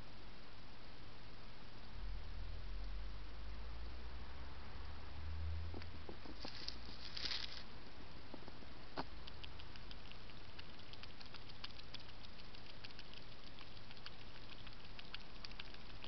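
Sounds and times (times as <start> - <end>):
hedgehog rustling in grass: 6.2 - 7.7
hedgehog feeding clicks and smacks: 9.0 - 16.0.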